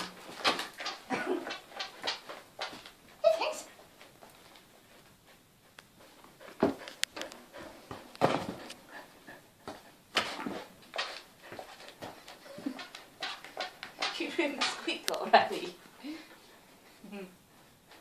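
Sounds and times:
balloon knocks and scuffs: 7.9s - 8.8s.

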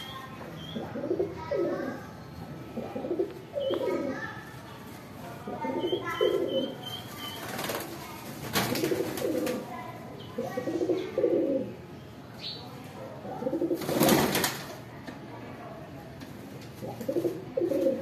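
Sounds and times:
pigeons cooing: 0.7s - 2.1s, 2.8s - 4.2s, 5.5s - 7.0s, 8.6s - 9.7s, 10.4s - 11.8s, 13.4s - 14.3s, 16.8s - 18.0s
wings flapping: 7.2s - 9.7s, 13.6s - 14.8s.

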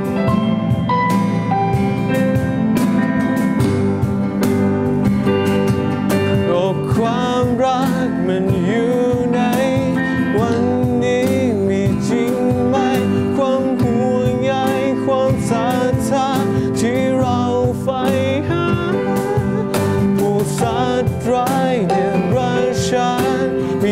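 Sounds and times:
cajon beat: 0.0s - 23.9s
keyboard: 0.0s - 23.9s
strummed acoustic guitar: 0.0s - 23.9s
person singing: 6.4s - 23.9s.

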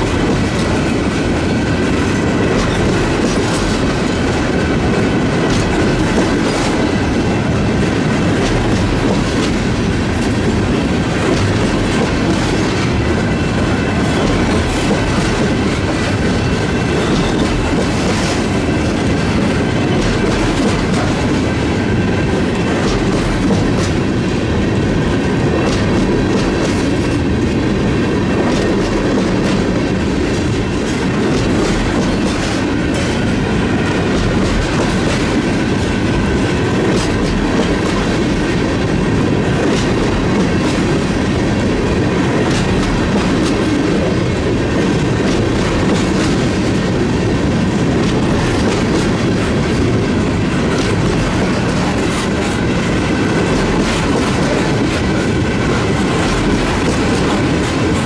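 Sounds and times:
train wheels rumbling on rails: 0.0s - 58.0s
wheels clicking over rail joints: 28.4s - 58.0s.

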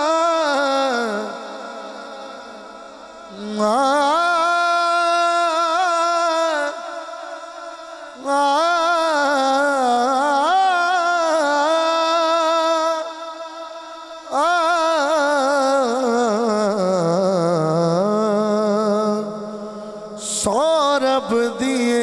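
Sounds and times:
man singing into microphone: 0.0s - 22.0s.

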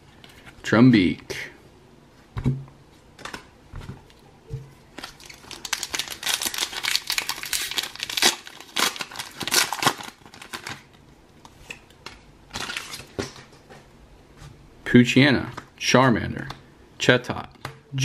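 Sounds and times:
foil wrapper crinkling and tearing: 5.0s - 10.9s, 12.5s - 13.1s.

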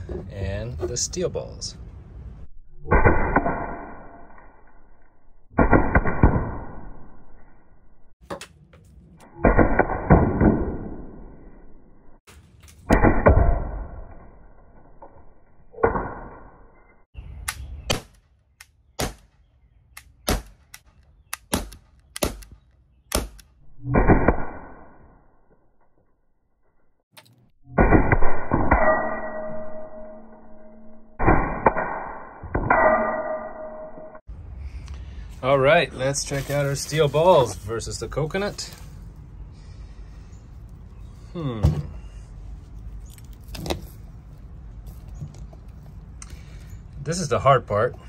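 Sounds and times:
slowed ringing gun blasts: 27.7s - 34.2s.

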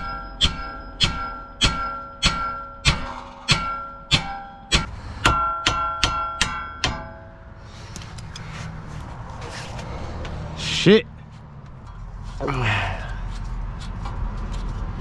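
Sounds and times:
hammer ringing on steel: 0.0s - 7.6s.

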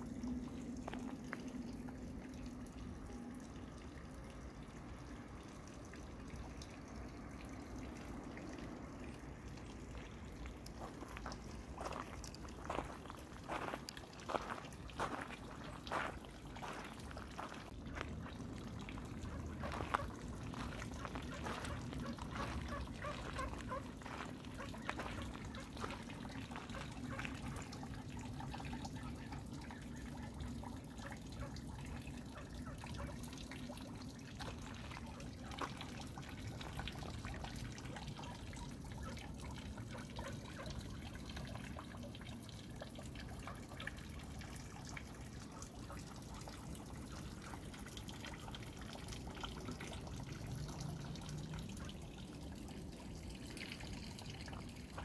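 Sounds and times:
water trickling and dripping: 0.0s - 55.0s.

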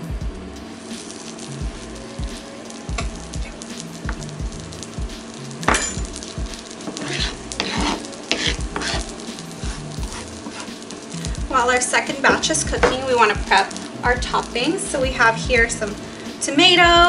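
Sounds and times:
background music with low beat: 0.0s - 17.0s
food sizzling in a pan: 0.0s - 17.0s
spatula scraping cutting board: 6.9s - 9.1s, 10.1s - 10.8s.

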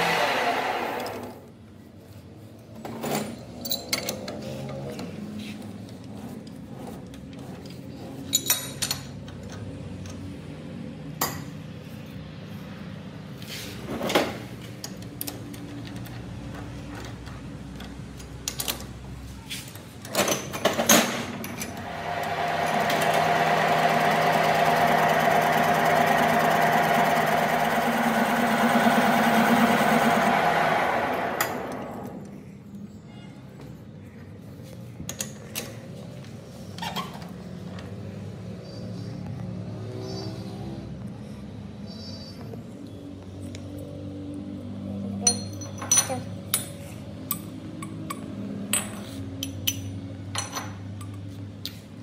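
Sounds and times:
power tool running: 0.0s - 1.5s, 21.8s - 32.3s
metal tools clinking: 3.0s - 4.6s, 8.2s - 9.6s, 45.2s - 51.3s.

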